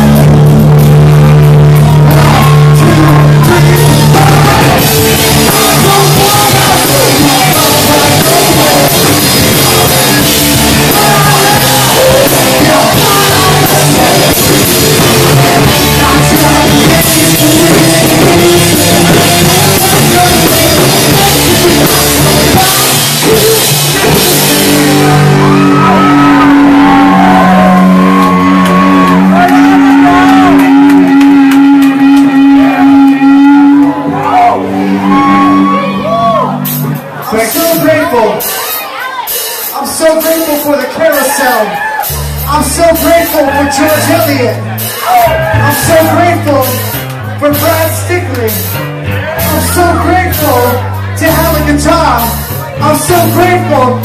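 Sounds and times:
rock band playing live: 0:00.0 - 0:54.0
person shouting singing: 0:01.9 - 0:36.7, 0:42.9 - 0:46.8.

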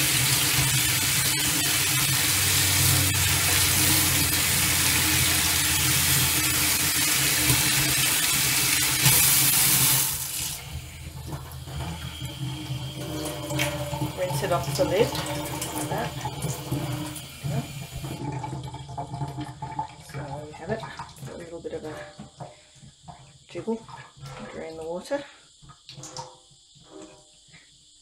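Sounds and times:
tap water splashing into sink: 0:00.0 - 0:26.4.

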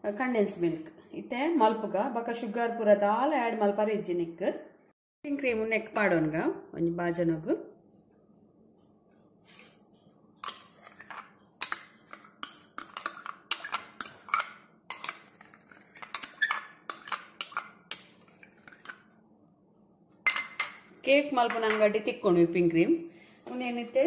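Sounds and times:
plastic spoon scraping bowl: 0:09.5 - 0:19.1.

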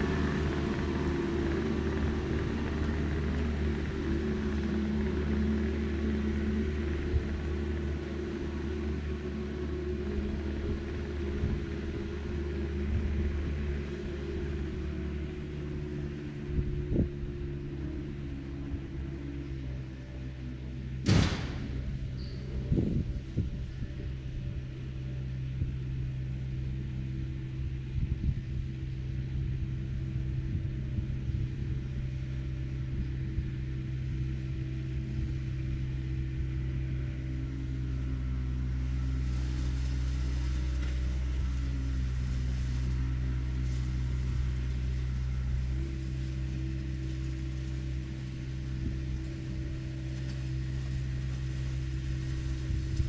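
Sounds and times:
engine knocks: 0:00.0 - 0:12.2, 0:21.0 - 0:23.8
diesel engine running: 0:00.0 - 0:53.0.

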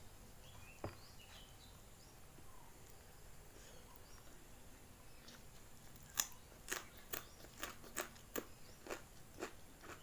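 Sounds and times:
chewing crunchy food: 0:05.2 - 0:10.0.

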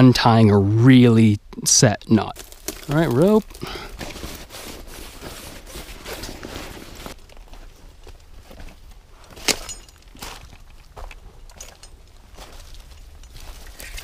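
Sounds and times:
backpack gear rustling: 0:02.4 - 0:14.0
footsteps on gravel: 0:06.2 - 0:14.0.

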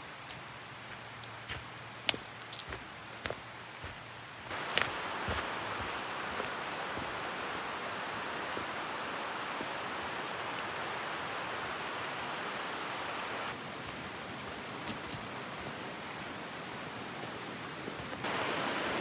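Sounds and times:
footsteps on gravel: 0:00.2 - 0:07.2
fast-flowing creek rushing: 0:02.6 - 0:19.0.

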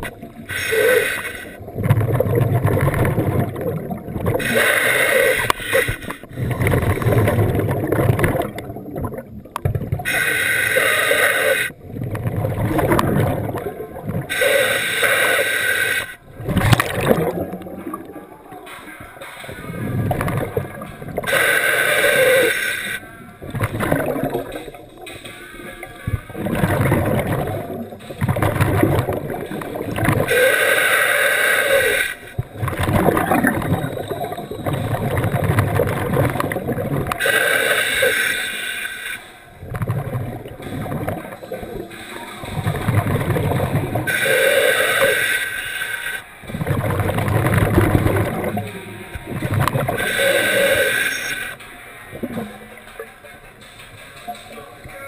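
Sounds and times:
diver inhaling through regulator: 0:00.5 - 0:01.6, 0:04.4 - 0:07.2, 0:10.1 - 0:11.8, 0:14.3 - 0:16.2, 0:21.2 - 0:23.0, 0:30.2 - 0:32.4, 0:37.2 - 0:39.3, 0:44.0 - 0:46.3, 0:49.8 - 0:51.6
exhaled bubbles rumbling: 0:01.6 - 0:10.2, 0:10.8 - 0:14.7, 0:16.2 - 0:30.5, 0:32.3 - 0:37.4, 0:39.5 - 0:44.6, 0:46.4 - 0:51.4.

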